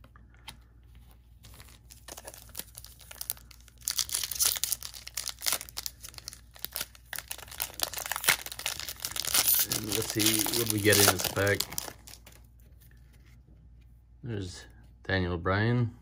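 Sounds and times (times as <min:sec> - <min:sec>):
foil wrapper tearing and crinkling: 0:01.5 - 0:12.4.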